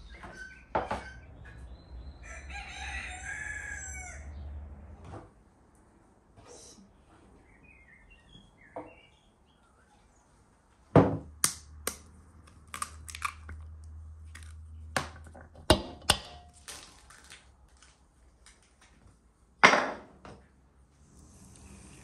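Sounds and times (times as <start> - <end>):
eggs cracking on bowl rim: 11.4 - 16.9.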